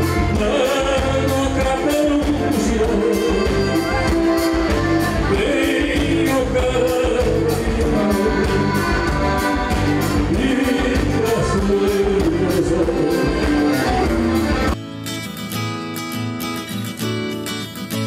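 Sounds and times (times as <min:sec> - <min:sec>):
man singing: 0:00.0 - 0:14.1
button accordion chords: 0:00.0 - 0:14.8
band playing steady beat: 0:00.0 - 0:15.6.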